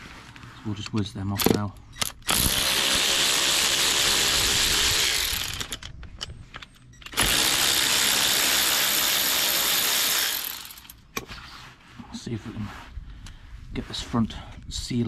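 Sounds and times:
power ratchet spinning: 2.0s - 5.9s, 7.0s - 11.0s.

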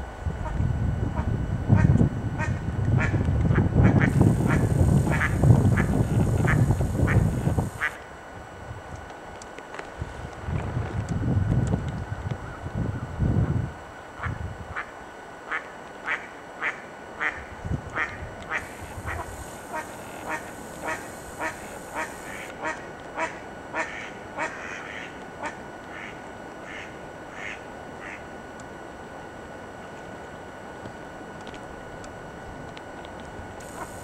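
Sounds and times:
duck quacking: 3.8s - 8.0s, 18.0s - 28.2s.

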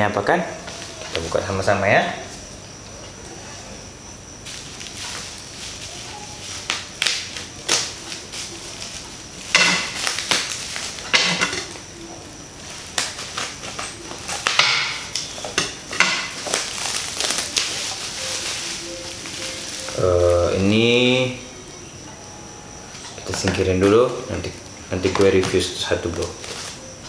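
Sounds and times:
plastic bag and bubble wrap crinkling: 4.4s - 21.4s, 23.0s - 27.0s.

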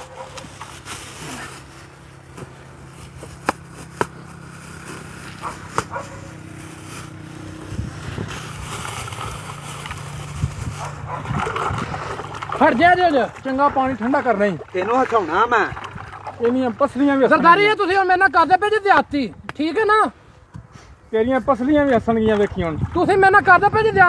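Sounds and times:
plastic bag rustling: 0.0s - 12.7s
ice knocking against bucket: 11.2s - 17.0s.

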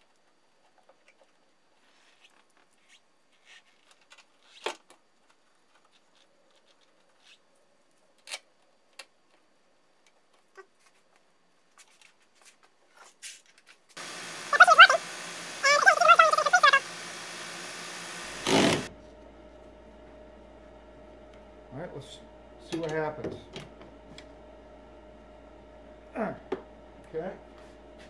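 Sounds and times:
wiper motor humming and whining: 14.0s - 28.0s.

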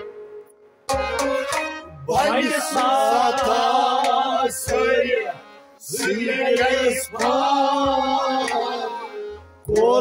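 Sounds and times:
man singing: 2.0s - 9.1s, 9.7s - 10.0s.

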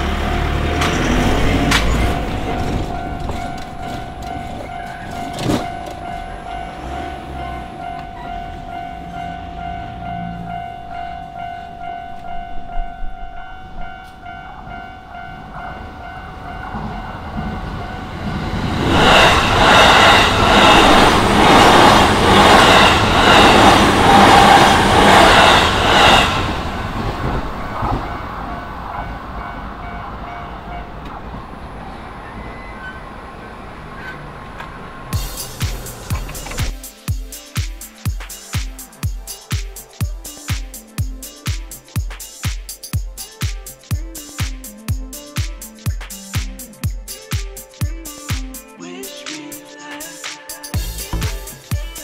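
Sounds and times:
level crossing bell ringing: 0.0s - 18.3s
electric train passing: 0.0s - 43.4s
train wheels clattering: 0.5s - 8.2s, 16.7s - 28.3s, 35.2s - 37.5s.

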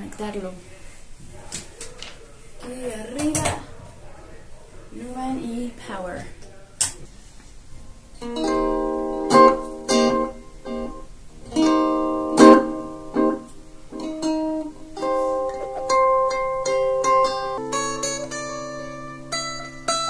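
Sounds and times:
electric ukulele chords strummed: 8.2s - 20.0s.

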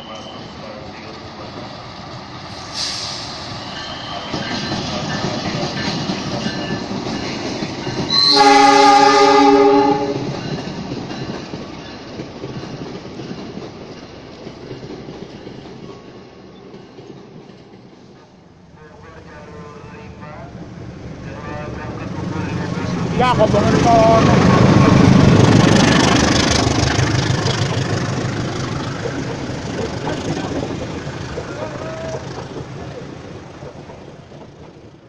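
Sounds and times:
train wheel noise: 0.0s - 35.0s
train horn blast: 8.1s - 10.3s.

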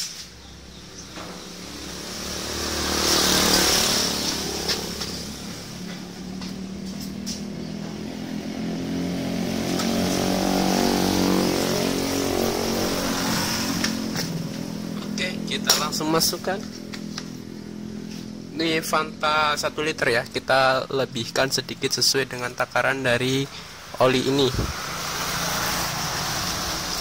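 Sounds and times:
motorcycle engine running: 1.0s - 20.3s.

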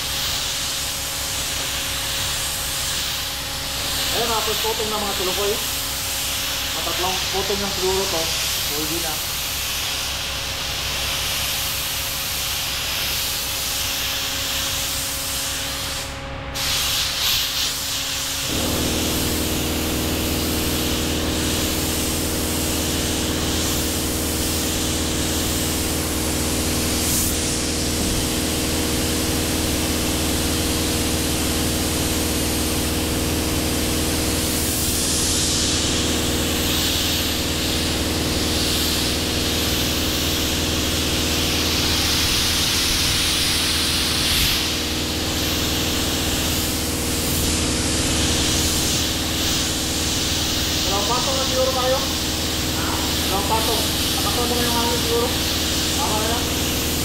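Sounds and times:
rushing air hiss: 0.0s - 57.0s
machine motor humming: 18.4s - 21.4s.

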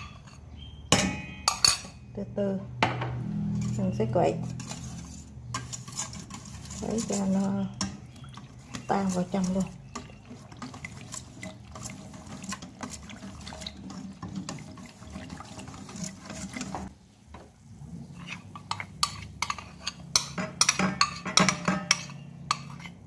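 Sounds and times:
liquid sloshing: 4.4s - 16.9s.

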